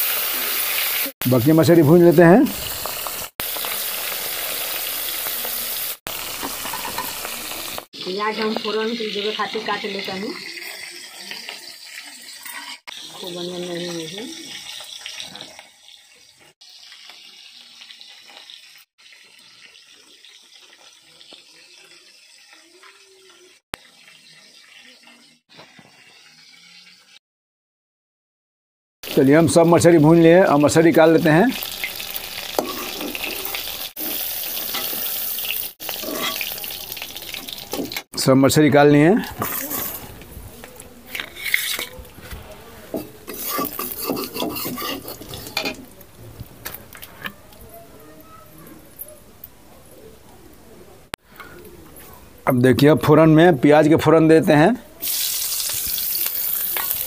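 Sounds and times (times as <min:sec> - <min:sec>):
fish sizzling in hot oil: 0:00.0 - 0:27.2, 0:29.0 - 0:38.1, 0:39.2 - 0:40.2, 0:41.1 - 0:47.0, 0:55.0 - 0:57.0
metal cookware scraping: 0:06.3 - 0:07.3, 0:31.6 - 0:35.2, 0:35.8 - 0:38.0, 0:39.2 - 0:40.3, 0:41.0 - 0:46.0.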